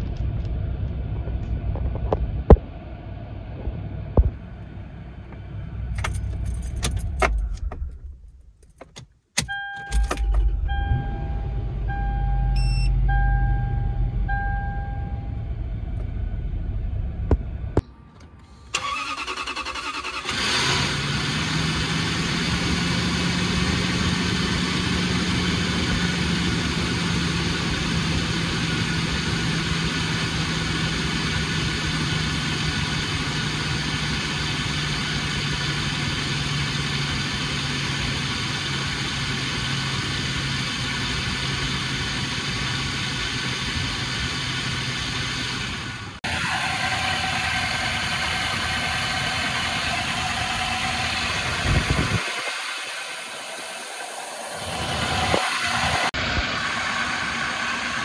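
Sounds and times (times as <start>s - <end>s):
car engine starting and idling: 0.0s - 58.0s
vehicle warning chime beeping: 9.4s - 15.6s.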